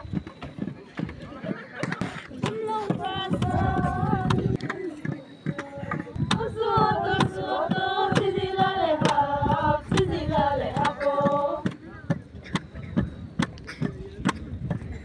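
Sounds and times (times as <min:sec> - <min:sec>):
women singing a chant: 0:02.1 - 0:12.0.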